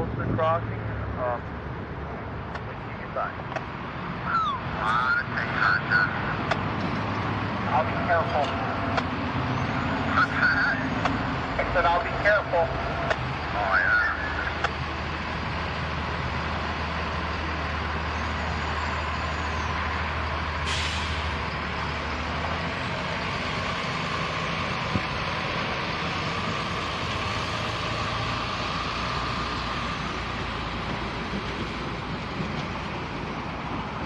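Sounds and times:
diesel truck engine rolling past: 0:00.0 - 0:34.0
short air hiss: 0:20.6 - 0:21.3.

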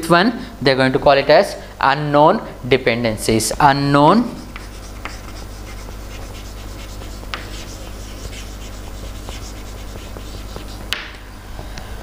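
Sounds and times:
chalk scratching on chalkboard: 0:04.1 - 0:11.0
chalk tapping on chalkboard: 0:04.2 - 0:11.1.

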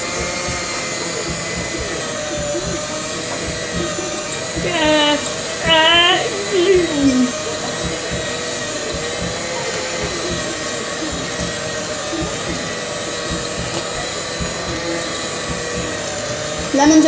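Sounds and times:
electric hand mixer whining: 0:00.0 - 0:17.0.

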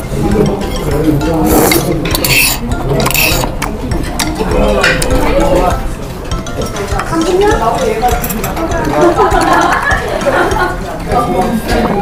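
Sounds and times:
metal chopsticks clicking on dishes: 0:01.7 - 0:05.7, 0:06.6 - 0:09.8.

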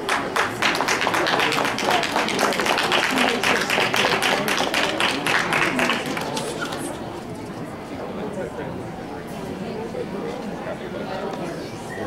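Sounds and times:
audience applause: 0:00.0 - 0:07.0.

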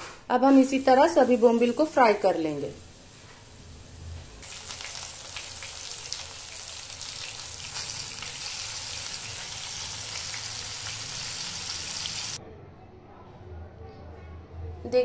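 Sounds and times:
fish frying in hot oil: 0:04.4 - 0:12.4.

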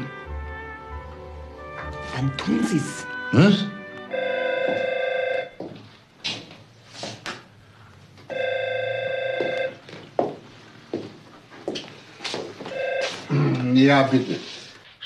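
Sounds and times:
desk telephone ringing: 0:04.0 - 0:05.6, 0:08.3 - 0:09.8, 0:12.7 - 0:13.3.

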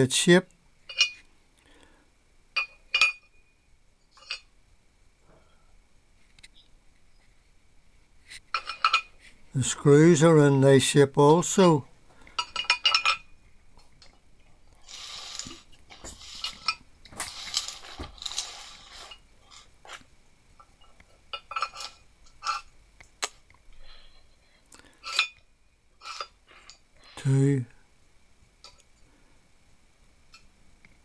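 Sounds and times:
metal parts clinking: 0:00.9 - 0:01.2, 0:12.4 - 0:13.3
metal scraping: 0:14.8 - 0:19.7, 0:26.0 - 0:26.8.

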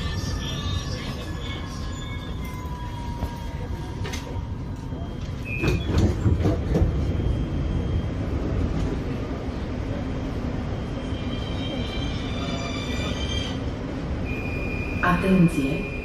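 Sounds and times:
train carriage rumble: 0:00.0 - 0:16.0
faint high whining tones: 0:14.2 - 0:16.0.

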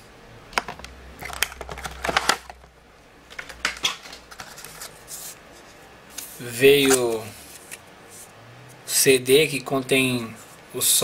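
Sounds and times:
plastic and cardboard handling: 0:00.6 - 0:02.7, 0:03.3 - 0:07.8.

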